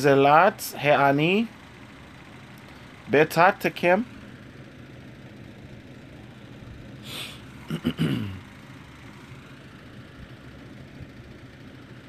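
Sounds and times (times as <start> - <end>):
low background hum: 0.0 - 12.0
low murmur: 0.0 - 12.0
man breathing: 7.0 - 8.5.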